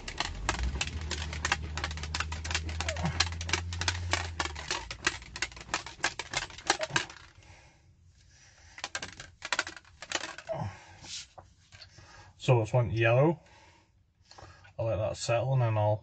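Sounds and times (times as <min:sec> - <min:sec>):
shaker cup rattling: 0:00.0 - 0:07.3, 0:08.8 - 0:10.5.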